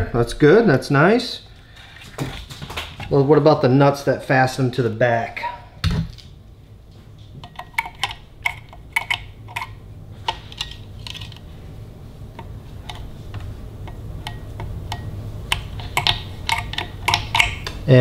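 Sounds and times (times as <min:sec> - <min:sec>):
steady low hum: 0:00.0 - 0:18.0
metal rod clicking on steel nuts: 0:13.9 - 0:17.7.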